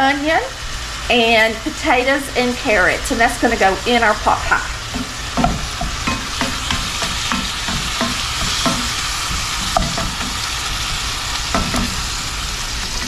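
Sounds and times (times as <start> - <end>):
meat sizzling in skillet: 0.0 - 13.0
utensil scraping against pan: 4.8 - 13.0.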